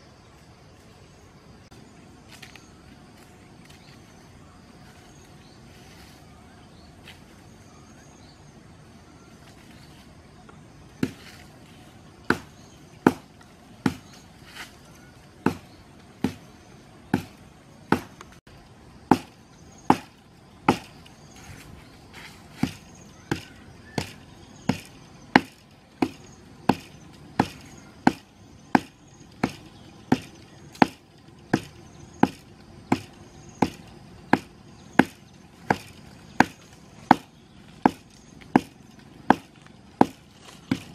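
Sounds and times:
blade chopping into tree trunk: 0:11.0 - 0:11.4, 0:12.2 - 0:14.2, 0:15.4 - 0:16.5, 0:17.1 - 0:18.3, 0:19.0 - 0:21.0, 0:22.6 - 0:40.9.

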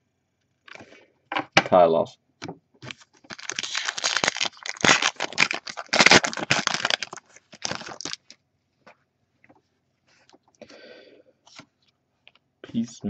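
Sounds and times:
wrapper tearing and crinkling: 0:02.8 - 0:08.4.

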